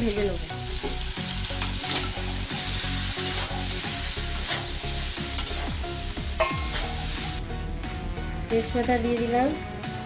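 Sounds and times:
vegetables sizzling in pan: 0.0s - 7.4s
spatula scraping and knocking pan: 1.6s - 7.0s.

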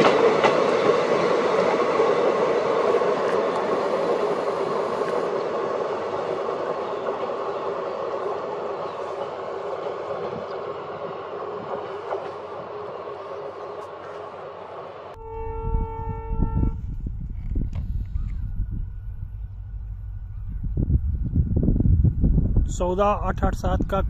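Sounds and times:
train rumble and wheel clatter: 0.0s - 24.0s.

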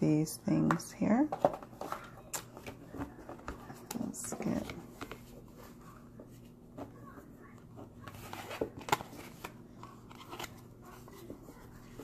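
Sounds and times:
cards rustling in hands: 7.9s - 12.0s.

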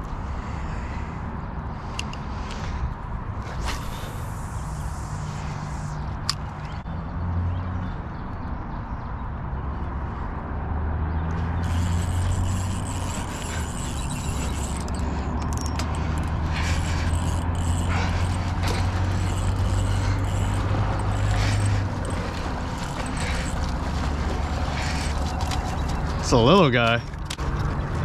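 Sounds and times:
low engine hum: 10.5s - 28.0s.

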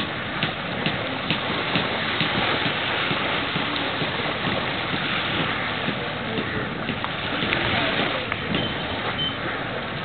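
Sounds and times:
water noise: 0.0s - 10.0s
wind: 0.0s - 10.0s.

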